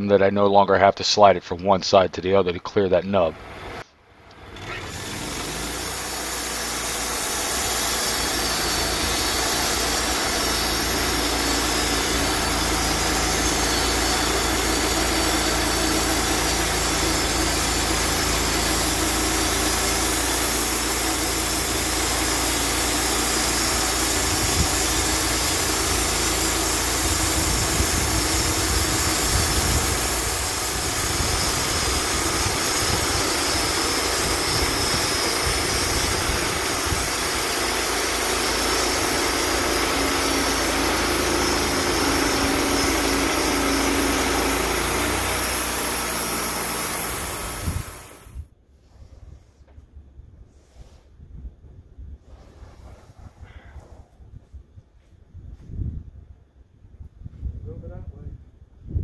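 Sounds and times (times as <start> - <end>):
band sawmill engine running: 1.2 - 48.4
saw blade cutting log: 4.4 - 48.3.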